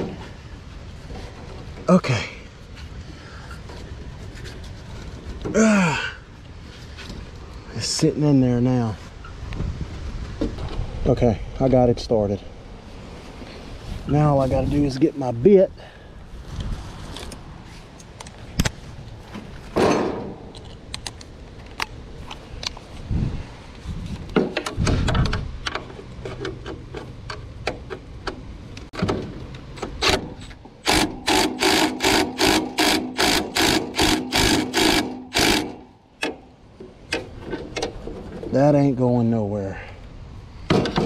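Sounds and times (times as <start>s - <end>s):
clicks and knocks of tools: 20.4s - 22.8s, 24.2s - 38.3s
cordless driver bursts: 30.8s - 36.4s.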